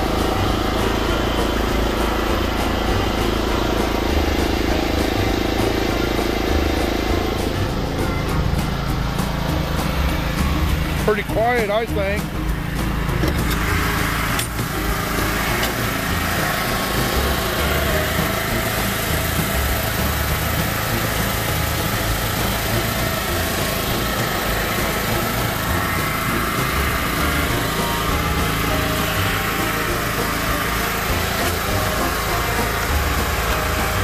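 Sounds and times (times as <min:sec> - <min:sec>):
generator engine running: 0:00.0 - 0:34.0.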